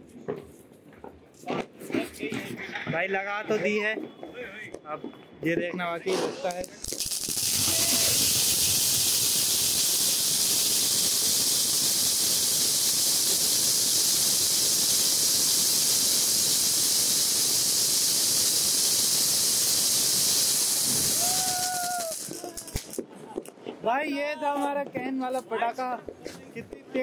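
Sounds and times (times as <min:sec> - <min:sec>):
firework hissing: 0:06.0 - 0:23.7.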